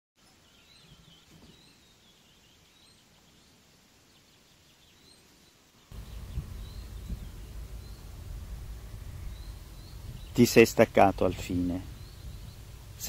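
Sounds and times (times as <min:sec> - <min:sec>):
bird chirping: 0:00.2 - 0:13.0
low outdoor rumble: 0:05.9 - 0:13.0.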